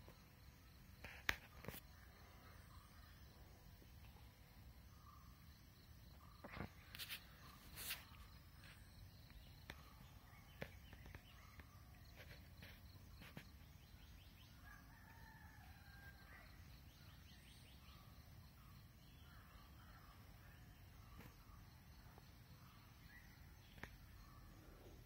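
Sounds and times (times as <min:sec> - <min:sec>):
rooster crowing faintly: 0:14.6 - 0:16.7.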